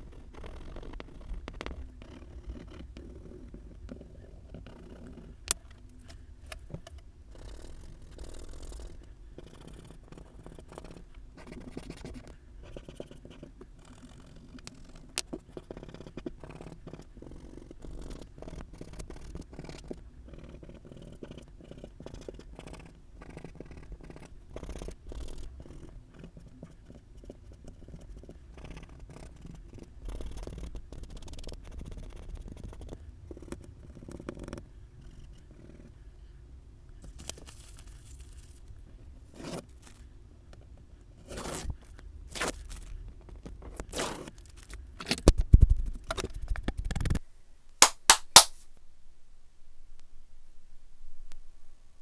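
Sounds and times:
hands rustling paper: 37.1s - 38.7s.

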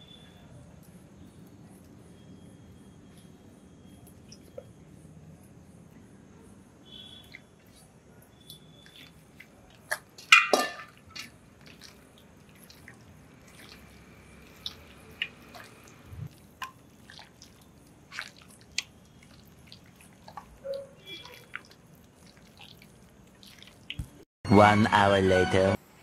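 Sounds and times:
raw chicken squelching in marinade: 7.1s - 24.2s.

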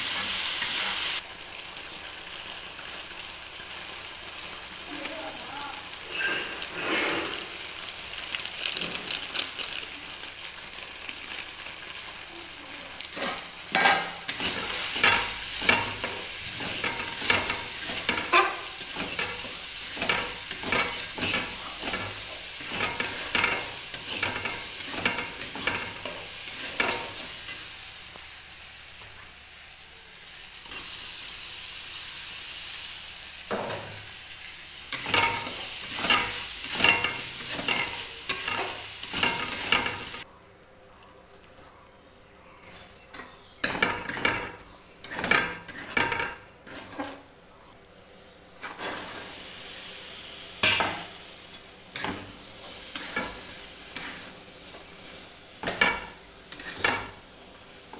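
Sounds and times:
spices sizzling in oil: 0.0s - 40.3s, 41.7s - 57.9s
spatula scraping a pan: 6.0s - 7.6s, 13.1s - 27.7s, 34.9s - 40.2s, 42.6s - 47.3s, 48.6s - 49.4s, 51.9s - 57.2s.

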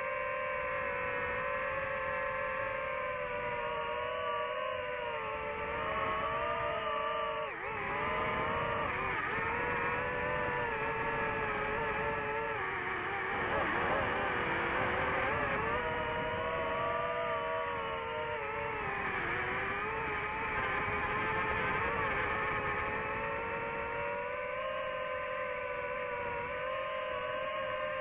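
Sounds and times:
drone motors whining: 0.0s - 28.0s.

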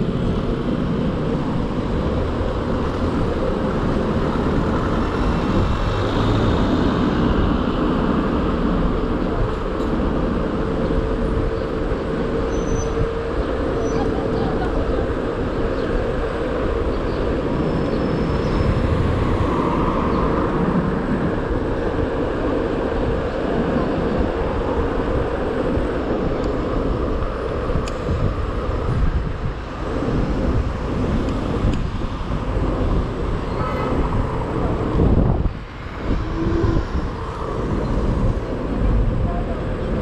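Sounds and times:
road and tyre rumble: 0.0s - 40.0s
traffic: 0.0s - 40.0s
wind rush on microphone: 0.0s - 40.0s.

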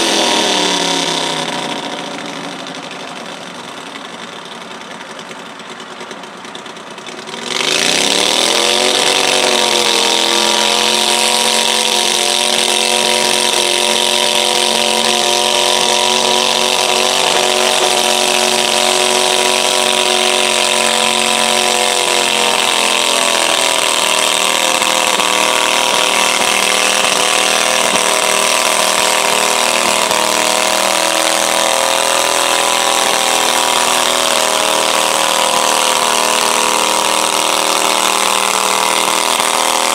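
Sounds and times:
tractor engine revving: 0.0s - 39.9s.

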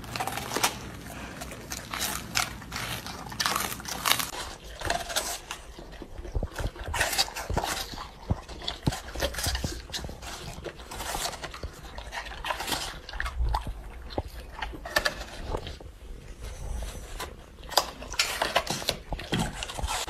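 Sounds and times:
dogs crunching apple: 0.0s - 20.0s.

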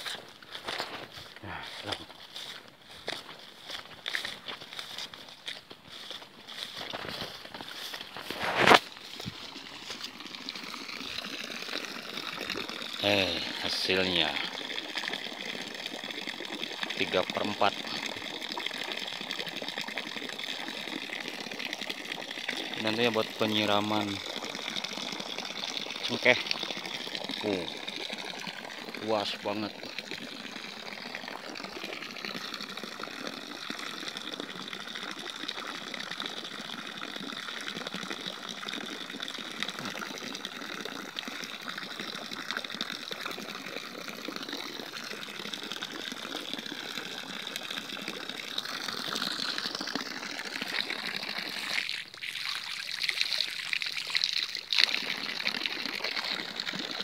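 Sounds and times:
water stream splattering on ground: 0.0s - 14.5s.

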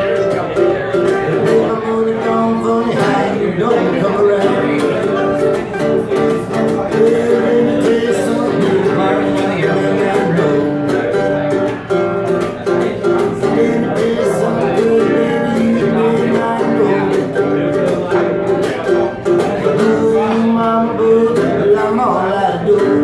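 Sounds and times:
acoustic guitar picking: 0.0s - 23.0s
mandolin: 0.0s - 23.0s.

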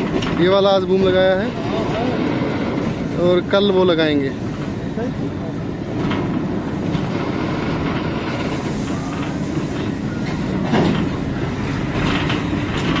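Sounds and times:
clack at rail joints: 0.0s - 4.8s, 5.9s - 13.0s
wheels rumbling on rail: 0.0s - 13.0s.

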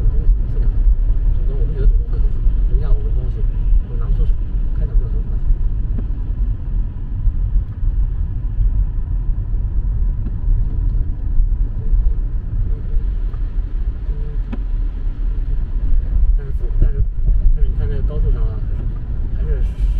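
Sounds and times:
car road and engine rumble: 0.0s - 19.9s.

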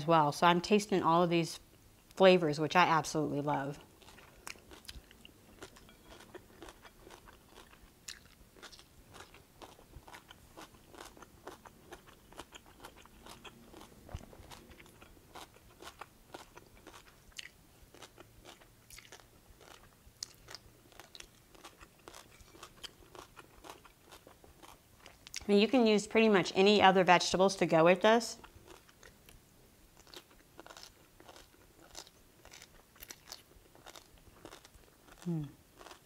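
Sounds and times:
chewing crunches: 4.0s - 25.5s, 28.6s - 29.4s, 30.0s - 36.0s.

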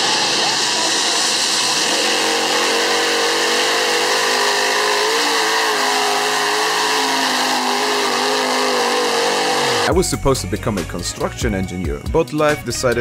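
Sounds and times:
diesel engines under full load: 0.0s - 10.0s.

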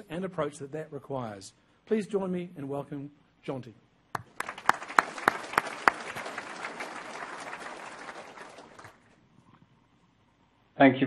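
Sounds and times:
loud single claps: 4.2s - 9.0s
audience applauding: 4.2s - 9.2s.

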